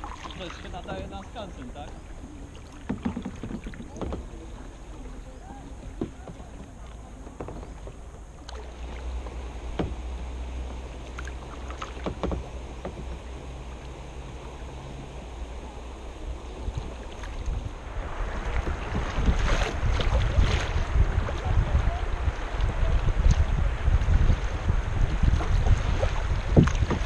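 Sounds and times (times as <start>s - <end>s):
river water around kayak: 0.0s - 27.0s
water splashes: 0.0s - 27.0s
wind buffeting microphone: 12.0s - 27.0s.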